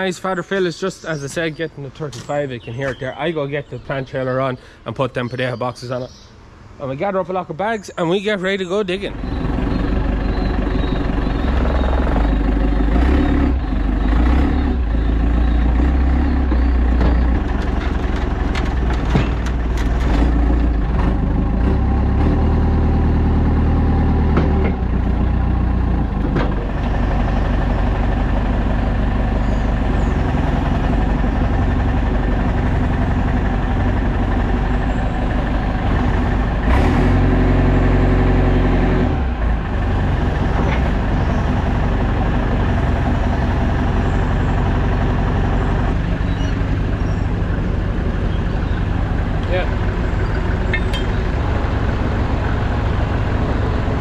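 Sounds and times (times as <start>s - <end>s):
farm machinery engines running: 6.8s - 54.0s
metal clanks: 17.0s - 20.3s, 50.3s - 51.3s.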